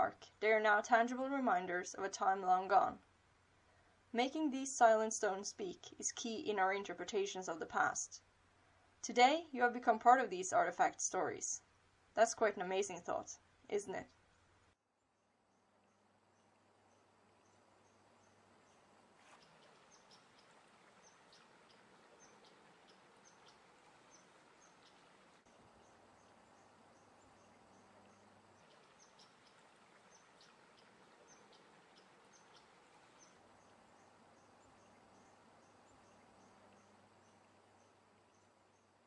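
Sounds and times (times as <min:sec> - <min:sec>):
soft hiss: 0:11.1 - 0:39.0
crickets chirping: 0:30.6 - 0:39.0.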